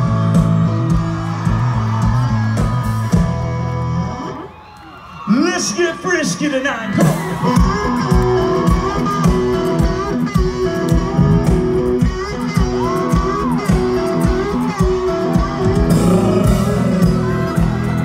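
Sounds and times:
live country band: 0:00.0 - 0:18.0
man singing: 0:15.6 - 0:18.0.

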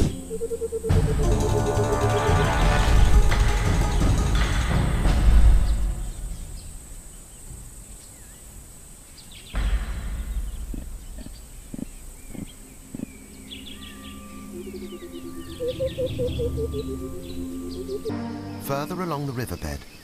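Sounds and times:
birds chirping: 0:00.0 - 0:04.3, 0:05.5 - 0:20.0
low rumble: 0:09.6 - 0:17.5
soft music with held notes: 0:12.6 - 0:20.0.

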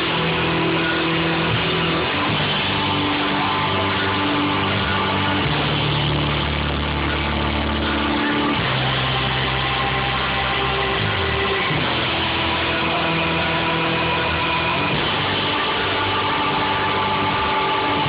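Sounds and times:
drums: 0:00.0 - 0:18.0
keyboard: 0:00.0 - 0:18.0
low electric bass notes: 0:00.0 - 0:18.0.

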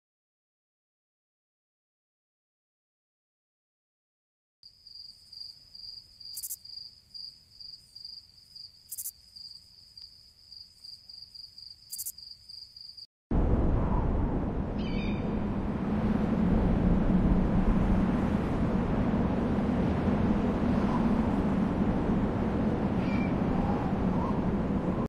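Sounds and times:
crickets chirping: 0:04.6 - 0:13.1
loud wind rush: 0:13.3 - 0:25.0.

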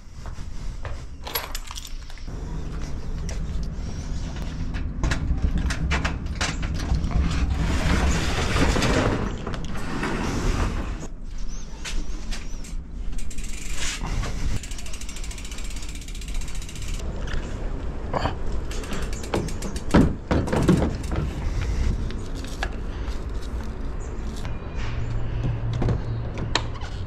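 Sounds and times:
roller garage door rattling: 0:02.3 - 0:11.1
bike freehub ticking rapidly: 0:13.2 - 0:14.0, 0:14.6 - 0:17.0.

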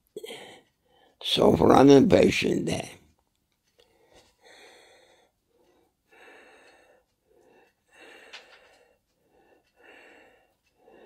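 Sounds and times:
man wheezy breathing: 0:00.1 - 0:01.1, 0:03.9 - 0:11.0.

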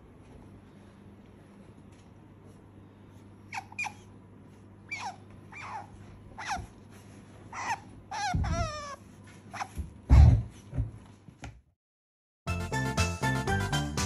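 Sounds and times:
otter squeaking: 0:04.8 - 0:06.8, 0:07.5 - 0:09.8.

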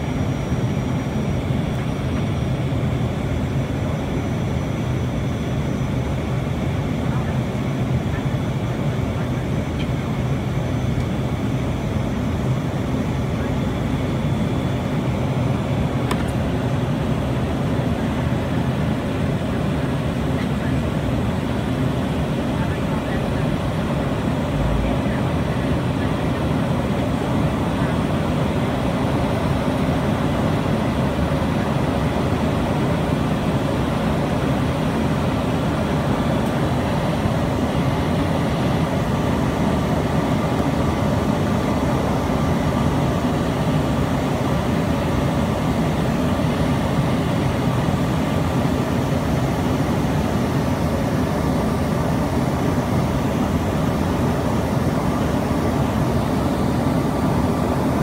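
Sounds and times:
jet engines in aircraft cabin: 0:00.0 - 0:58.0.

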